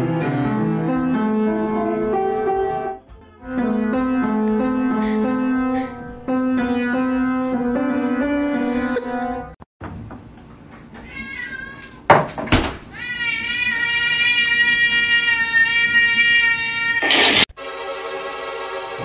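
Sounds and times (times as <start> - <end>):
piano notes: 0.0 - 9.6
cat meowing: 11.0 - 12.1, 12.9 - 17.4.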